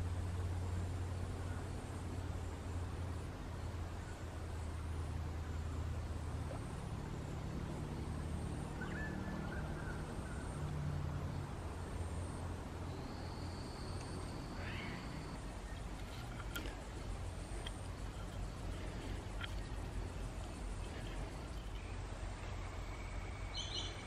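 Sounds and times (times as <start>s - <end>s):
steady low hum: 0.0s - 24.0s
faint high bird calls: 8.4s - 10.8s, 12.8s - 24.0s.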